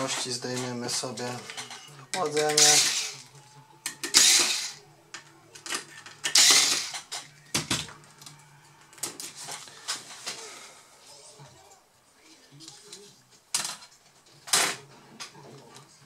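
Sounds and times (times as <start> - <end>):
electric screwdriver whirring: 4.0 - 4.8, 6.2 - 7.0
screws and tool clicking: 6.2 - 7.1.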